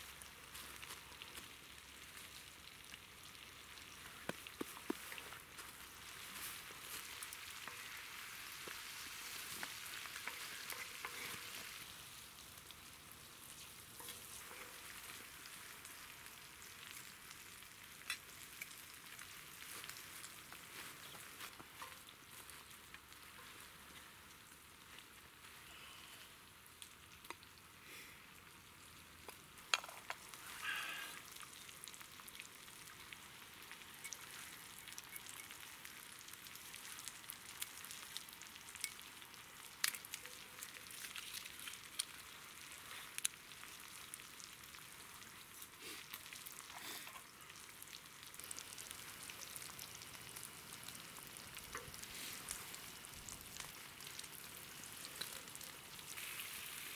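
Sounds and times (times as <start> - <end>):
meat sizzling: 0.0 - 56.9
sharp clicks and crackles: 39.7 - 42.2.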